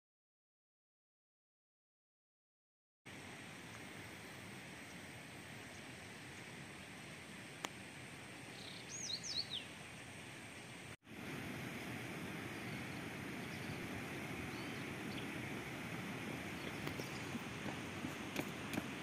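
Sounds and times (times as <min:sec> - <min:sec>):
outdoor background noise: 0:03.1 - 0:19.0
bird chirping: 0:08.5 - 0:09.8, 0:12.5 - 0:15.4, 0:16.5 - 0:18.2.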